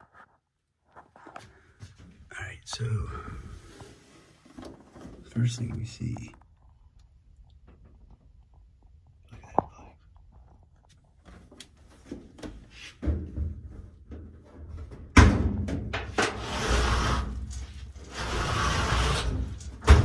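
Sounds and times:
clothes dryer scraping and rumbling: 15.6 - 20.0.

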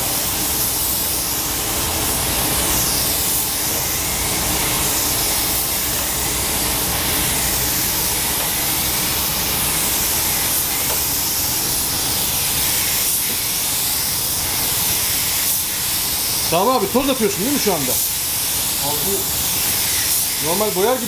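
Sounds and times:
spray gun hissing: 0.0 - 21.0.

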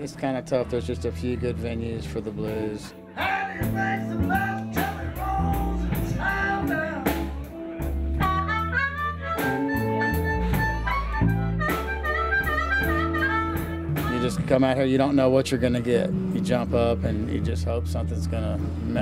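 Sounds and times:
live blues band: 0.0 - 19.0
man singing: 0.1 - 8.4
blues harmonica: 3.1 - 19.0.

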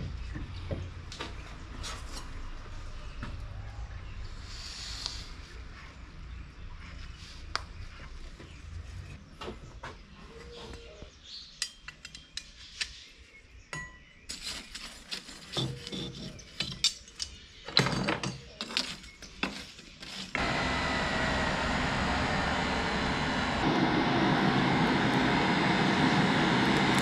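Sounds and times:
steel scraping charcoal and brick: 14.3 - 17.1, 18.6 - 20.4
electric blower rushing: 20.4 - 27.0.

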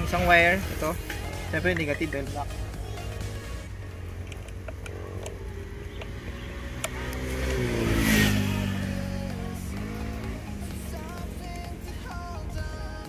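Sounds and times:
background music: 0.0 - 13.0
vehicle engine passing by: 2.4 - 12.0.

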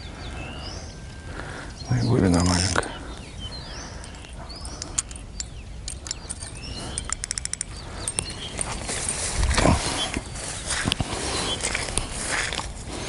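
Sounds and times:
footsteps wading through wet growth: 8.6 - 13.0.

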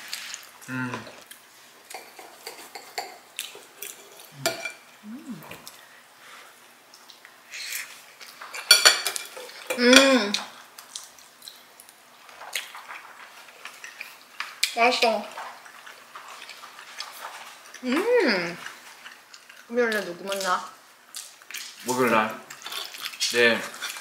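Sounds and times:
brief vocal sound: 4.4 - 5.7.

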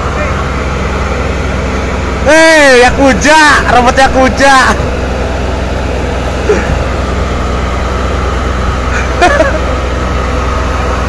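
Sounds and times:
heavy machinery engine droning: 0.0 - 11.0
man shouting: 2.2 - 4.8.

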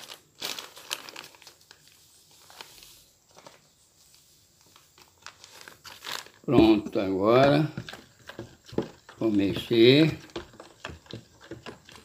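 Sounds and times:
plastic bag crinkling: 0.0 - 12.0
powder pouring: 4.7 - 12.0.

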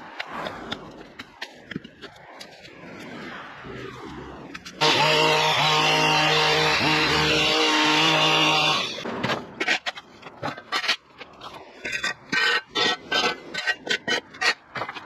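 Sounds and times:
knocks and scrapes: 0.0 - 5.3, 6.2 - 15.0
power tool running: 4.8 - 9.0.

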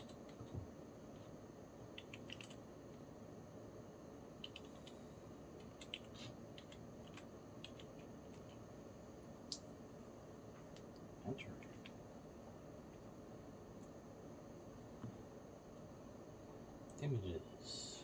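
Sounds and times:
keyboard and mouse clicks: 0.0 - 0.6, 2.0 - 2.6, 4.4 - 5.0, 5.6 - 8.6
low room hum: 0.0 - 18.0.

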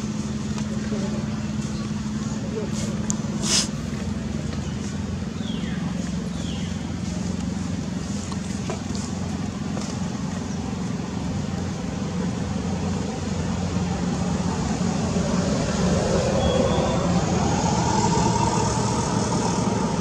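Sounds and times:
low engine hum: 0.0 - 20.0.

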